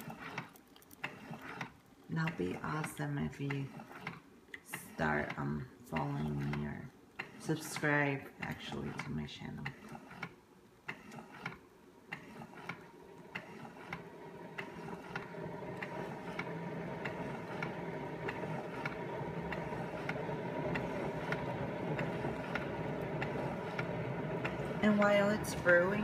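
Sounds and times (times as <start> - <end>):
coffee maker pump hum: 0.0 - 26.0
regular ticking: 9.6 - 26.0.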